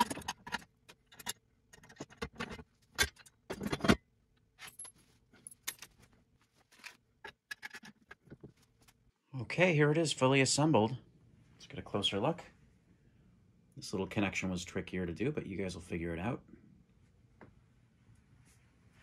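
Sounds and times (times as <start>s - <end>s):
metal parts clinking on workbench: 0.0s - 4.0s
bolts and washers clinking: 0.0s - 9.0s.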